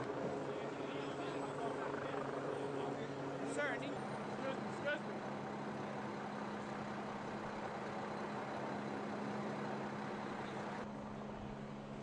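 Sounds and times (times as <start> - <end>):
truck engines idling: 0.0 - 12.0.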